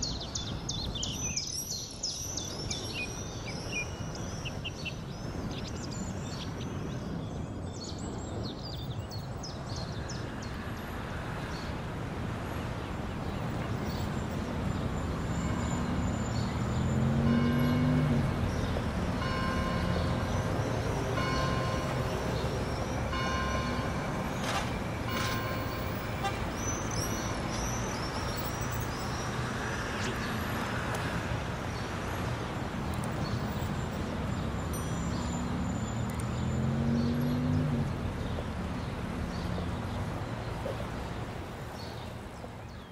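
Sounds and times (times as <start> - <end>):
traffic rumble: 0.0 - 42.9
bell-like tones: 19.1 - 26.2, 34.6 - 36.1.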